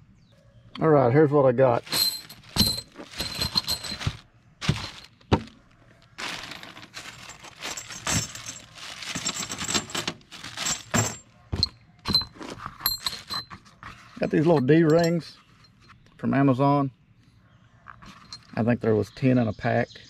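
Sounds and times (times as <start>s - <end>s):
plastic bag crinkling: 1.8s - 11.2s
metal rings clinking together: 1.9s - 5.2s, 6.3s - 13.6s, 14.2s - 15.9s.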